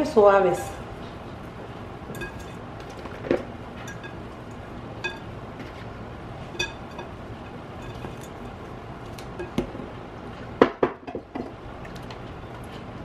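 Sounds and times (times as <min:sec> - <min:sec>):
shaker clinking on glass bowl: 0:02.1 - 0:02.6.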